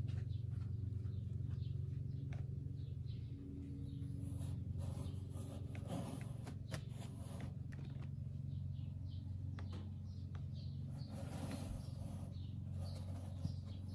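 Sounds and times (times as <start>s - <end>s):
steady low hum: 0.0s - 13.9s
kitten claws scratching cardboard: 4.3s - 8.1s, 10.9s - 13.9s.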